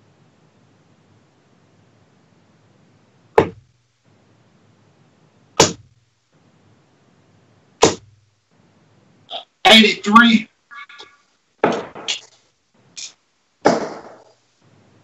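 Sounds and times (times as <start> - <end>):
darts striking dartboard: 3.4 - 3.7, 5.6 - 5.9, 7.8 - 8.2, 11.6 - 12.3, 13.6 - 14.3.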